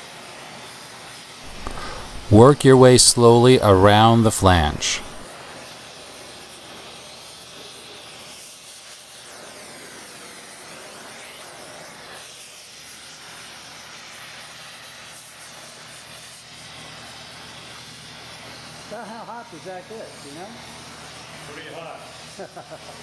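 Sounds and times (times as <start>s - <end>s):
gas torch flame hissing: 1.5s - 2.4s.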